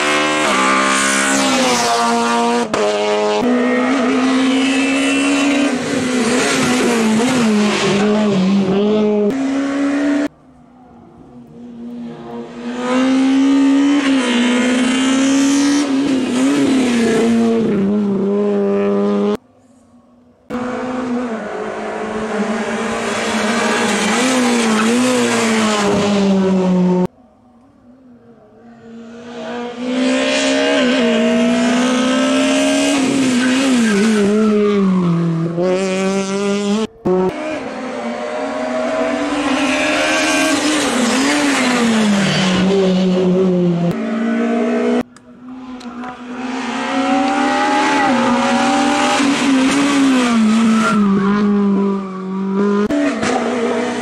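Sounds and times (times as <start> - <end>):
racing car engines accelerating: 28.8 - 54.0.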